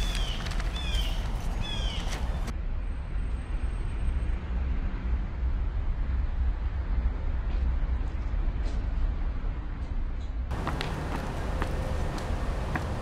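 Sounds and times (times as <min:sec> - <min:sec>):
bird chirping: 0:00.0 - 0:02.5.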